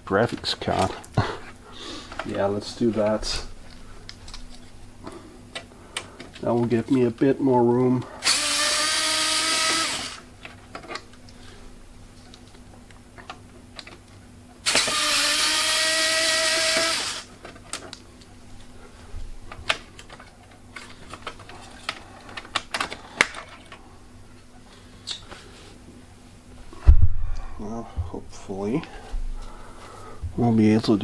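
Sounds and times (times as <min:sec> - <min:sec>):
electric screwdriver whine: 0:08.2 - 0:10.3, 0:14.6 - 0:17.3.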